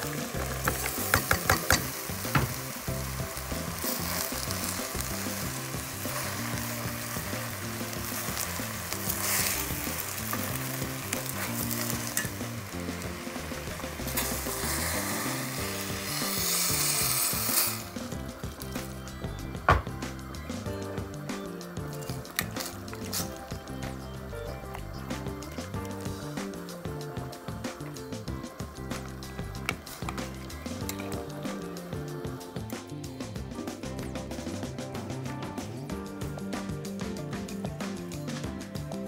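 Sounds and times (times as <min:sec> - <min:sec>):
broth pouring: 0:00.0 - 0:18.9
vegetables sizzling in a pot: 0:00.0 - 0:39.0
spatula stirring: 0:00.1 - 0:18.7
vegetables clattering into pot: 0:00.4 - 0:02.6.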